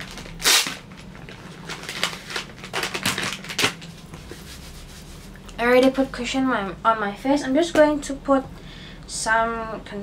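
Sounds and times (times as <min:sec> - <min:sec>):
packaging clicks taps and rustles: 0:00.0 - 0:03.9.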